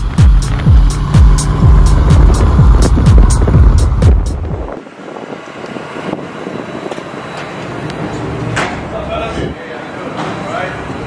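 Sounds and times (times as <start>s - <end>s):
sliding bass kicks: 0.0s - 4.8s.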